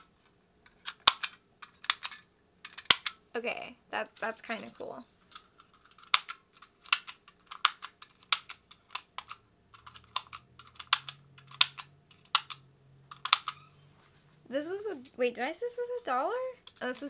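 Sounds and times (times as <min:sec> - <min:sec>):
plastic fidget toy clicking: 0:06.0 - 0:13.6.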